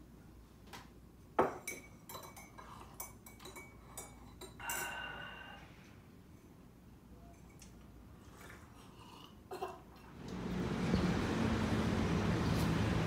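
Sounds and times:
ceramic mugs clinking: 0:01.4 - 0:05.1.

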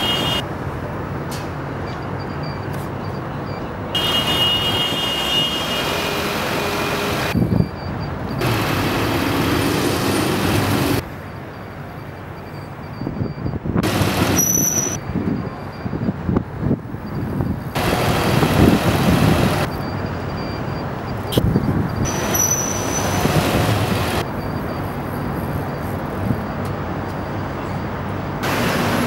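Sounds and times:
city traffic: 0:00.0 - 0:29.0
truck engine running: 0:06.2 - 0:11.0, 0:13.8 - 0:15.0, 0:17.1 - 0:20.8.

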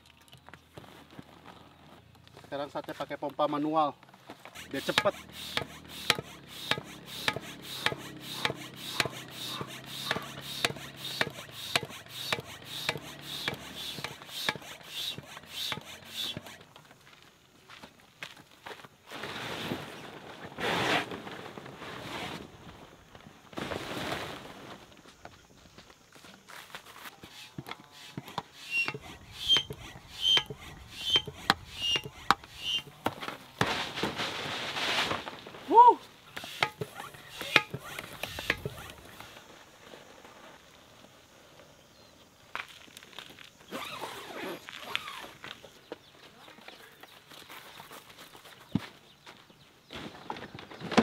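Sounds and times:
floor pump clicks and air rush: 0:04.3 - 0:17.2, 0:26.7 - 0:34.4, 0:36.3 - 0:39.6.

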